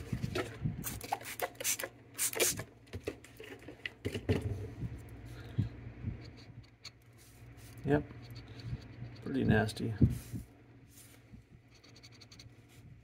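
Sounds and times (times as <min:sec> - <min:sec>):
spray bottle hissing sprays: 0:00.8 - 0:02.6.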